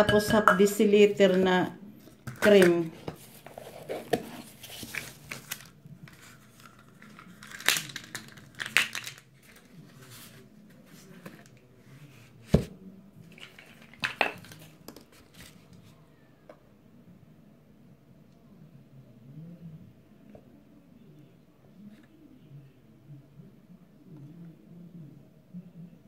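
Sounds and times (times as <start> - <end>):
plastic cups clicking and rustling: 2.1 - 10.4, 13.2 - 15.8.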